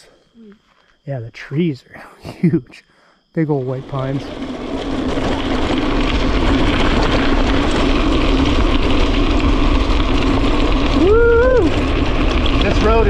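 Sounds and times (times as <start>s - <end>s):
bike tyres on gravel: 3.4s - 13.0s
wind on microphone: 3.8s - 13.0s.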